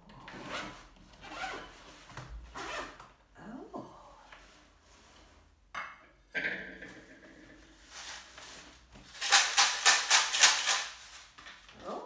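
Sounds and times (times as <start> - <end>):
plastic bottle shaking: 9.0 - 11.7.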